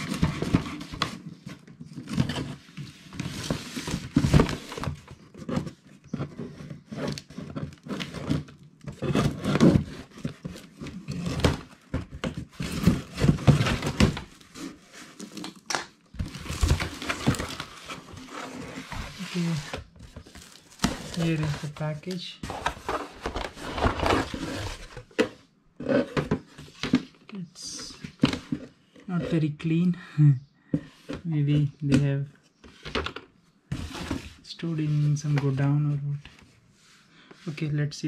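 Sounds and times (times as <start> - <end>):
tape and cardboard crinkling: 0.0 - 25.0.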